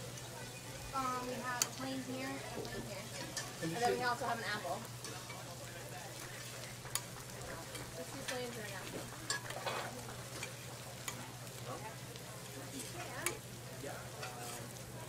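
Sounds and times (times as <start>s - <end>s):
food sizzling on a griddle: 0.0s - 15.0s
wooden spatula clicking on griddle: 6.8s - 9.7s.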